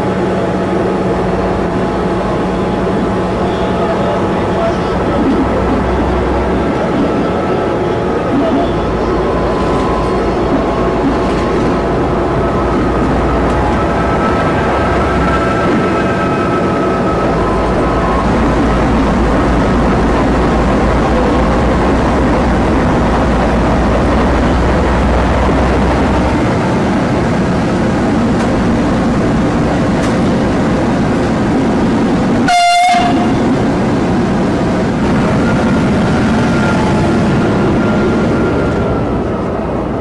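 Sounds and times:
diesel locomotive running: 0.0 - 40.0
locomotive horn blast: 32.4 - 33.5.

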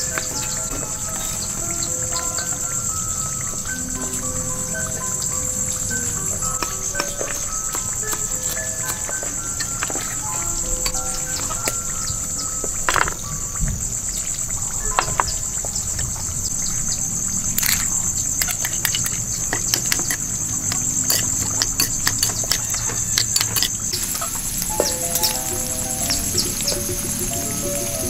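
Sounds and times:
insects trilling: 0.0 - 28.0
spoon clicking in ceramic bowl: 6.1 - 11.9, 17.6 - 24.3.

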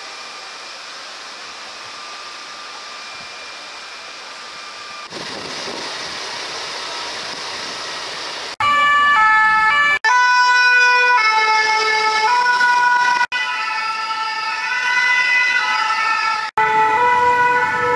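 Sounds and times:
two-tone fire engine sirens: 8.6 - 17.9
street traffic noise: 11.8 - 17.9.

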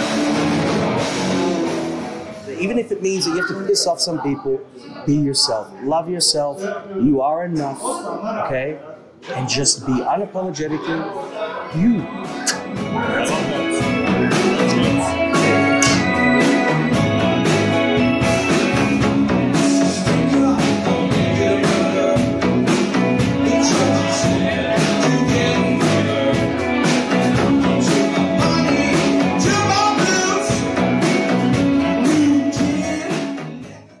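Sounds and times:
indie pop band playing: 0.0 - 4.0, 11.8 - 34.0
person singing: 11.8 - 16.8, 19.3 - 31.2, 31.8 - 34.0.

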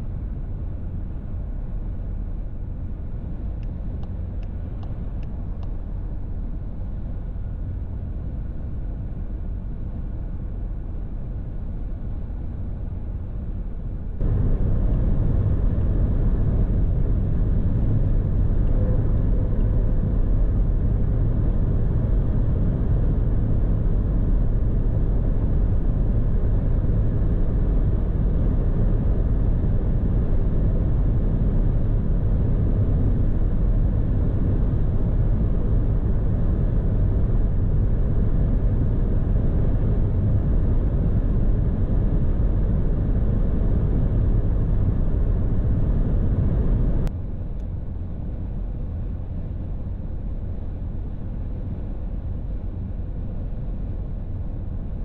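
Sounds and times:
wind noise: 14.0 - 55.0
diesel engine cruising: 14.2 - 47.1
road noise: 14.2 - 47.1.

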